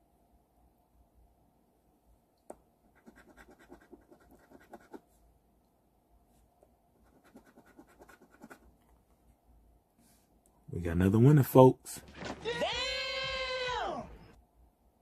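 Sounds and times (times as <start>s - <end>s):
coin scratching lottery ticket: 3.0s - 5.0s, 7.0s - 8.6s.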